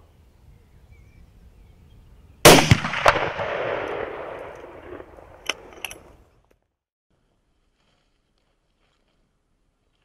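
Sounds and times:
rifle shot cracking and echoing: 2.4s - 5.7s.

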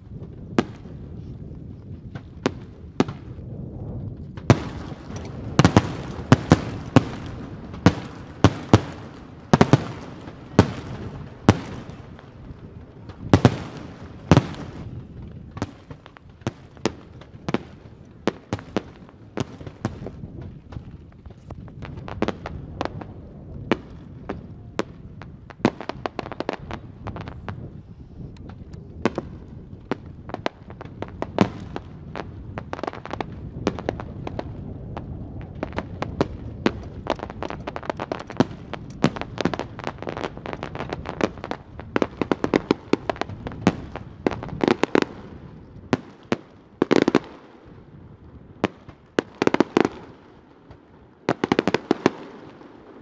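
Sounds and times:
firework shells bursting: 4.4s - 12.0s, 36.6s - 45.1s
rapid crackling pops: 28.3s - 45.2s.

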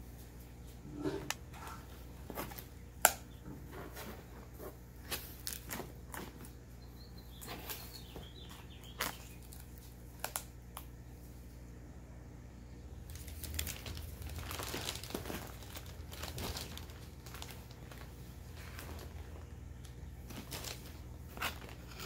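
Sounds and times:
plastic bag crinkling: 5.0s - 6.5s, 7.3s - 10.5s, 13.0s - 22.0s
shredded paper rustling: 13.0s - 22.0s.

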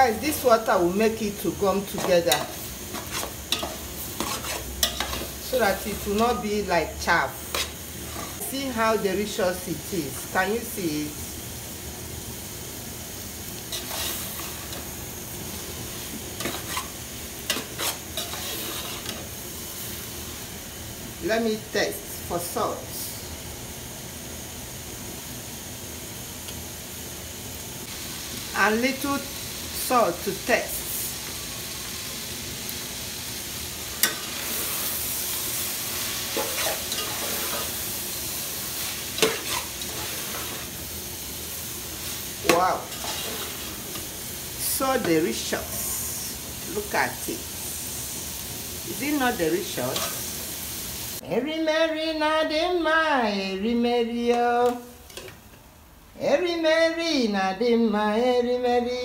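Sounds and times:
food sizzling in a pot: 0.0s - 59.0s
metal spoon scraping a pot: 2.3s - 5.4s, 17.5s - 19.2s.

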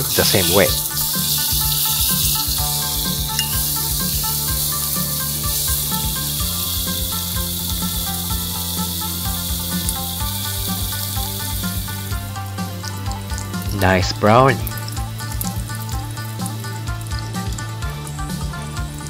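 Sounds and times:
soft background music: 0.0s - 19.0s
steak sizzling in frying pan: 0.0s - 19.0s.

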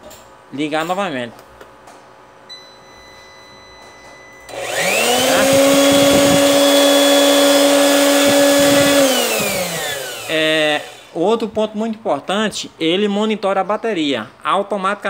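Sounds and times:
electric motor whining: 4.5s - 11.2s.

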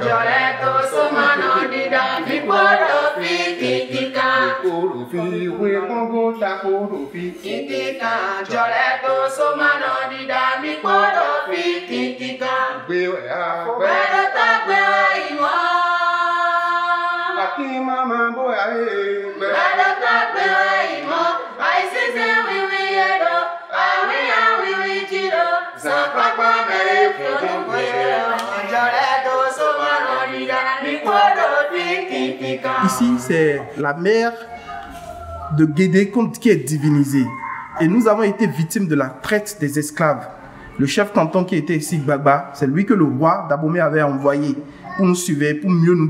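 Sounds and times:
men and women singing a chant: 0.0s - 34.0s.

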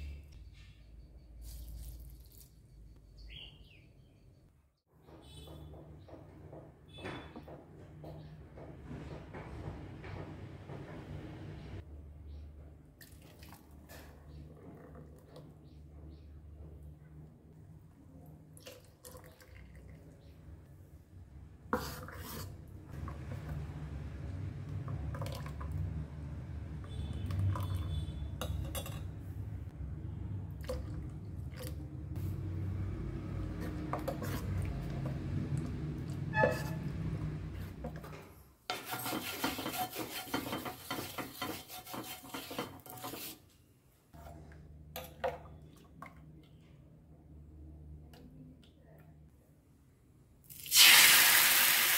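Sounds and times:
spoon stirring batter in bowl: 21.7s - 23.6s, 33.4s - 43.6s.

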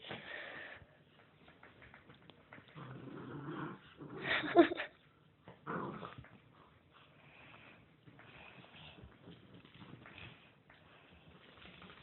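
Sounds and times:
puppy growling: 2.5s - 4.8s, 5.5s - 6.5s.

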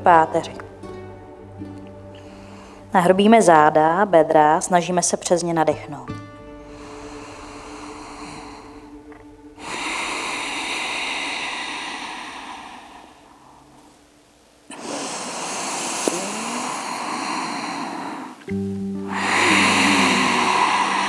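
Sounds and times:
deep breaths close to microphone: 1.4s - 3.0s, 6.4s - 21.0s.

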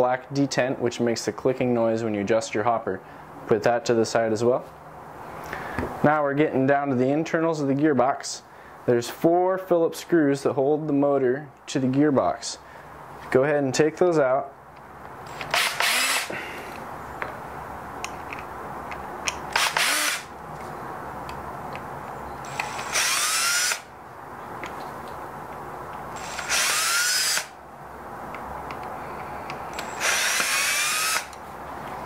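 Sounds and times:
cordless drill whirring: 15.3s - 16.4s, 19.5s - 20.3s, 22.4s - 23.9s, 26.2s - 27.6s, 29.7s - 31.4s.

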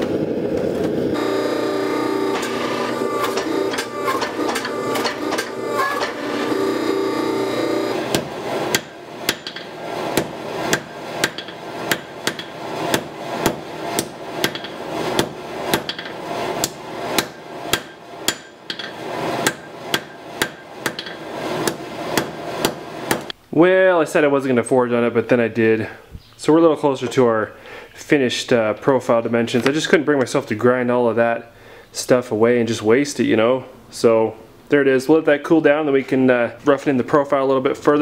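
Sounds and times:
forge running: 0.0s - 23.3s
hammer striking steel on anvil: 8.1s - 23.3s.

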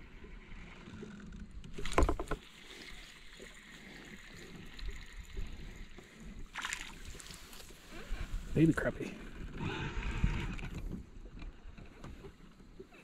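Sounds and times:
faint water noise: 0.0s - 13.0s
fish splashing at water surface: 6.5s - 7.7s.

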